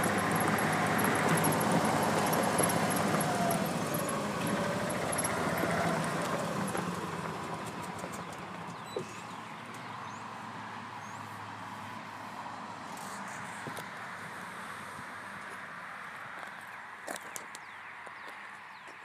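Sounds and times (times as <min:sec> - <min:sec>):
truck passing: 0:00.0 - 0:16.4.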